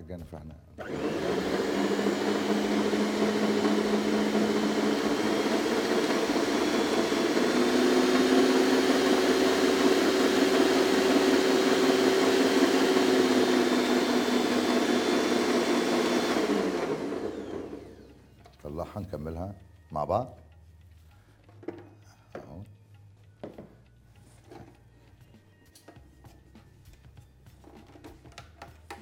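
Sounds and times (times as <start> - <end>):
electric mixer motor whine: 0.8 - 18.4.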